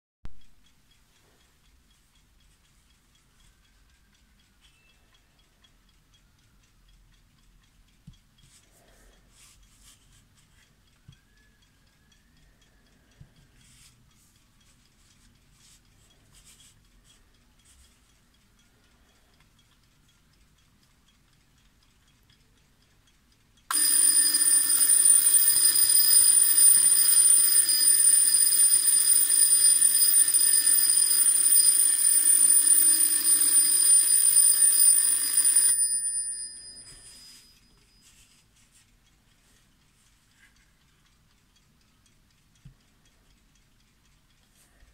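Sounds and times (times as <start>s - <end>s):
twin-bell alarm clock ringing: 23.7s - 38.4s.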